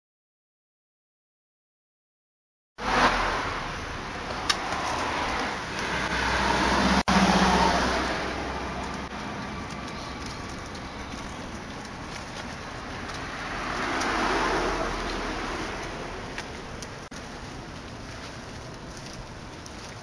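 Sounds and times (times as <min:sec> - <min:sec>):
car passing: 0:02.8 - 0:20.0
traffic hum: 0:02.8 - 0:20.0.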